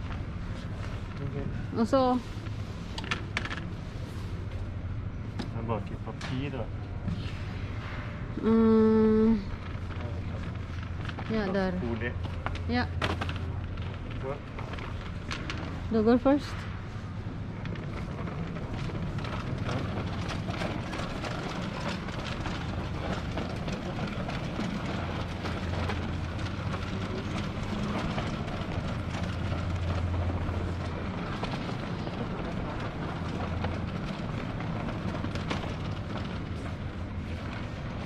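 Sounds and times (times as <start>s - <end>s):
shopping cart rolling on tiles: 8.6s - 38.0s.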